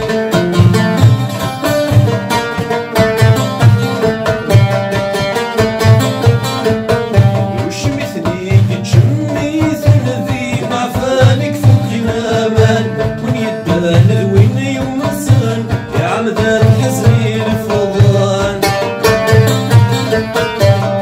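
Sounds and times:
oud plucked with a plectrum: 0.0 - 21.0
man singing folk song: 5.8 - 21.0.

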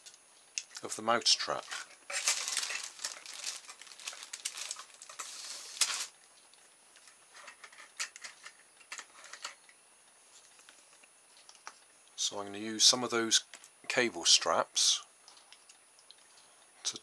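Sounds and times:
plastic wrapper rustling: 0.0 - 6.2.

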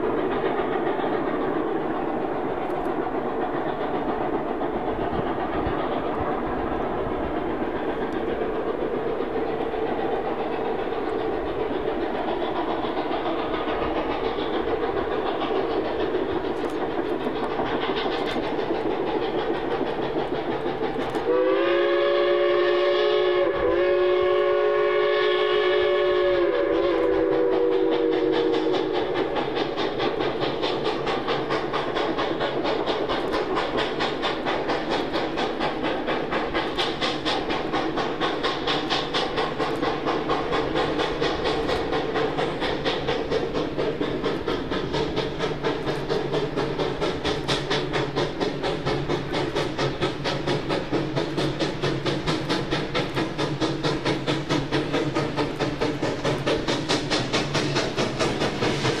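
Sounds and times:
train running on rails: 0.0 - 59.0
steam locomotive whistle: 21.2 - 29.2.

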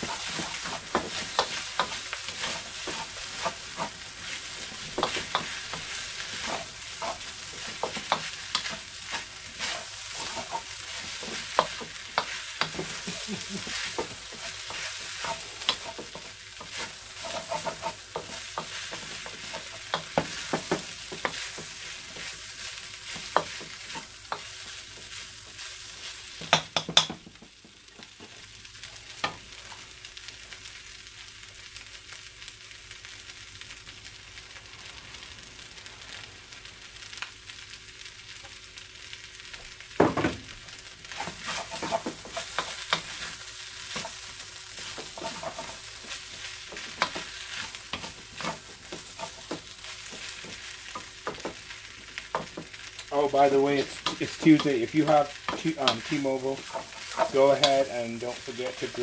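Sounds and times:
wooden spatula scraping wok: 0.0 - 28.4, 41.0 - 59.0
food sizzling in a wok: 0.0 - 59.0.

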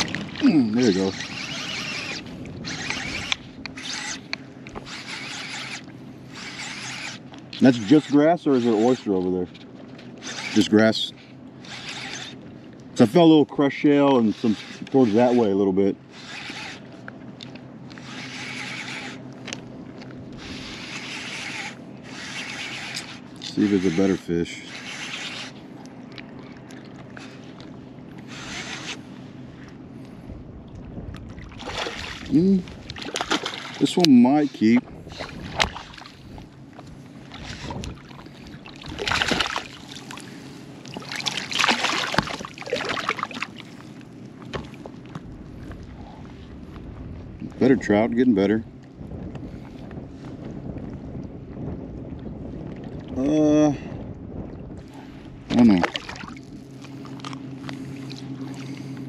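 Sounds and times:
fishing reel whirring: 0.0 - 30.2, 31.5 - 46.7
fish splashing at water surface: 31.4 - 33.9, 37.3 - 43.8.

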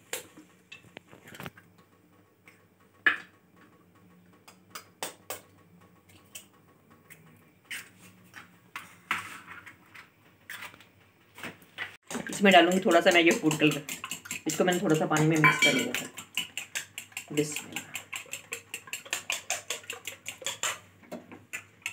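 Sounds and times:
cookware clicking and tapping: 12.1 - 20.8.

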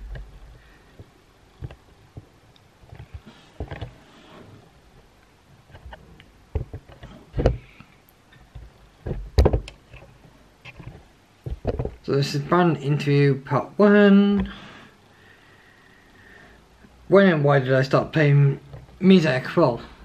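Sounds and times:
low room noise: 0.0 - 20.0
soft knocks and thumps: 5.7 - 7.8, 8.4 - 12.1.

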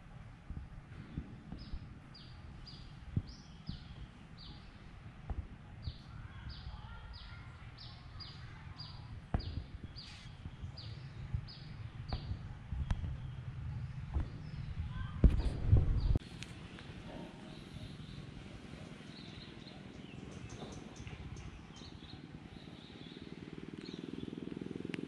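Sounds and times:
low rumbling: 0.0 - 25.0
fur brushing against microphone: 10.0 - 10.5.

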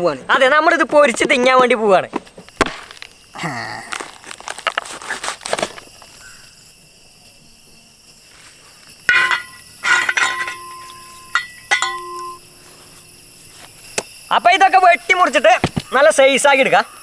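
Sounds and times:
insect chirring: 0.0 - 17.0
machete cracking through fruit: 3.8 - 6.0
machete clinking on metal basin: 9.1 - 13.4.

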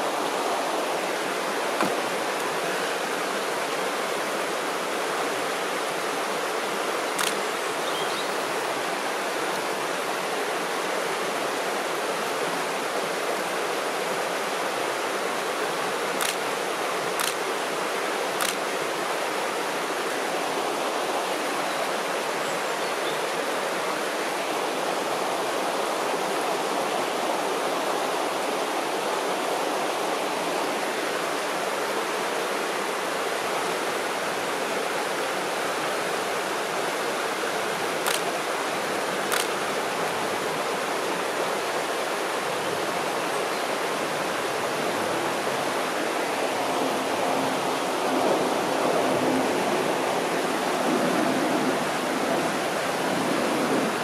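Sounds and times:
river water rushing: 0.0 - 54.0
faint clicks: 16.2 - 16.4, 17.2 - 17.4, 18.4 - 18.6, 38.0 - 38.3.

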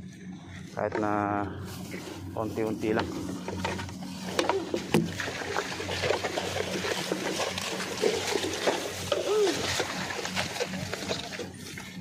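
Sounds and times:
rice straw rustling and crackling: 1.6 - 12.0
wet mud splashing and squelching: 3.0 - 12.0.

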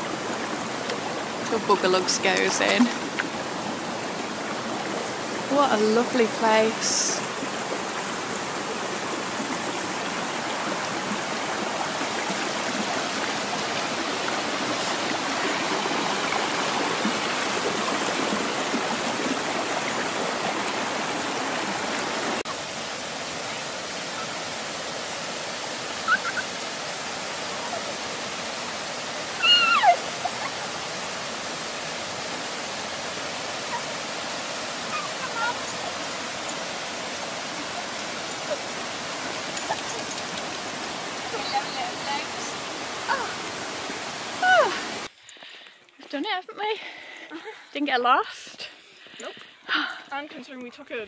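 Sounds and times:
stream rushing: 0.0 - 45.1
high falling calls: 25.9 - 28.1, 29.2 - 31.3.

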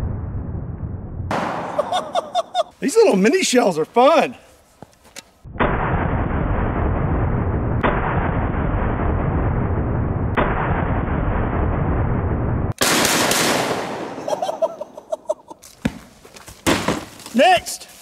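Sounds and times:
slowed-down shotgun booms: 0.0 - 2.0, 5.5 - 14.2.

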